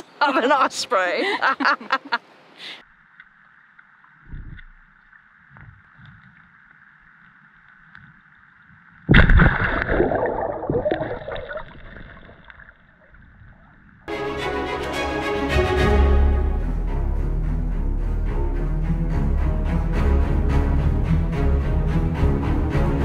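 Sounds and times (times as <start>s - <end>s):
water rushing and gurgling: 2.9s - 16.6s.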